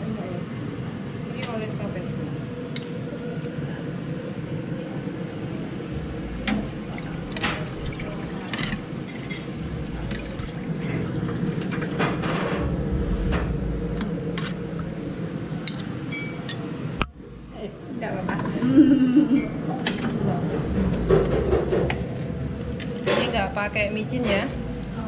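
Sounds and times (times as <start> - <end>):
broth splashing into bowls: 6.4 - 11.7.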